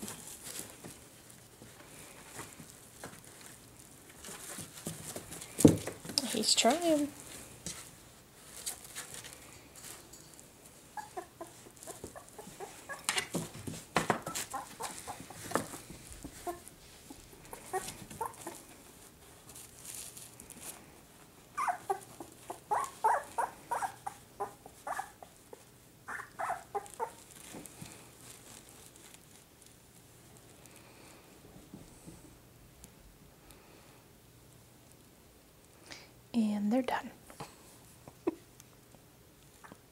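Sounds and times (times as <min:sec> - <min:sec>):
puppy pads crinkling: 0:00.0 - 0:31.2
puppies squeaking and whimpering: 0:11.0 - 0:13.3, 0:14.2 - 0:15.3, 0:16.2 - 0:18.6, 0:21.6 - 0:25.2, 0:26.1 - 0:27.2.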